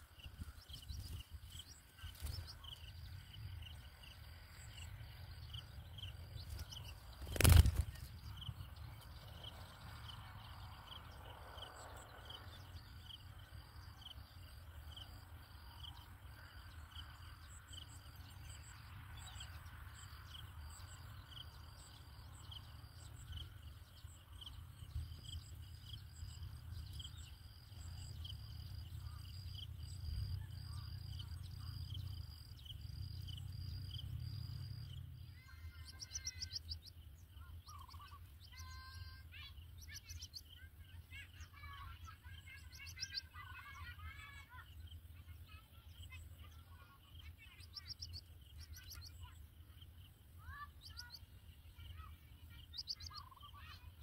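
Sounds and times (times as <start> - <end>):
faint low rumble: 0.0 - 36.0
small birds warbling: 0.0 - 54.0.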